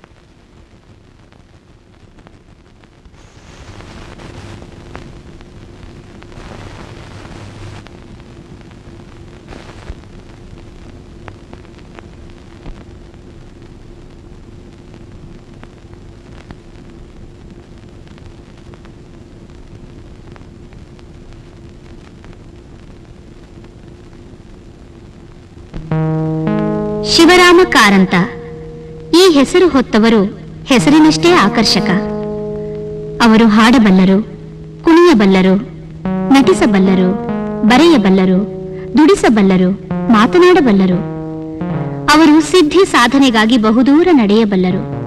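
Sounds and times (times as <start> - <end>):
film soundtrack hiss: 0.0 - 45.0
constant low hum: 25.7 - 45.0.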